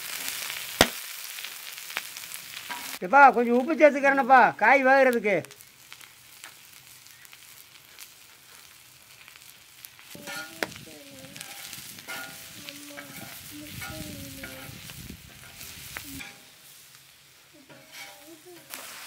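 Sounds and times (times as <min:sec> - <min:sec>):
vegetables sizzling in oil: 0:00.0 - 0:19.0
metal spatula scraping: 0:10.2 - 0:16.6, 0:17.6 - 0:19.0.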